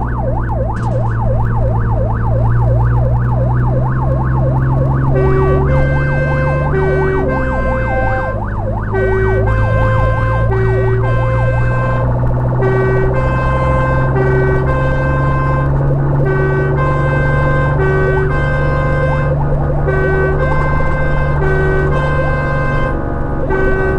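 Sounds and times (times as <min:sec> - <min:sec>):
truck engine drone: 0:00.0 - 0:23.9
two-tone siren: 0:00.0 - 0:23.9
yelp siren: 0:00.0 - 0:23.9.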